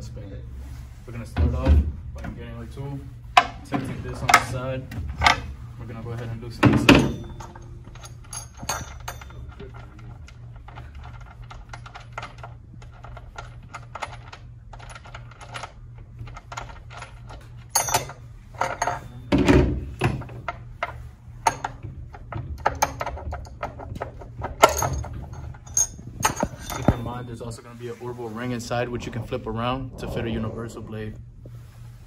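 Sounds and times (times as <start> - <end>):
small metal clicks and clinks: 7.1 - 10.0.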